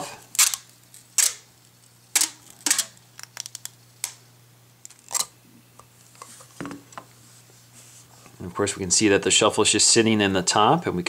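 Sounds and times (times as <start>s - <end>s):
plastic packaging clicks and crackles: 0.3s - 4.2s.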